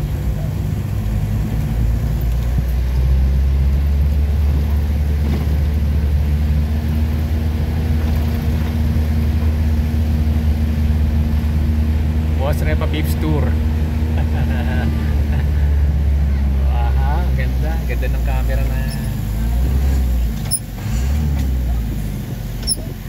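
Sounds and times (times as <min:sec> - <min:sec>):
road noise: 0:00.0 - 0:23.0
vehicle engine running under load: 0:00.0 - 0:23.0.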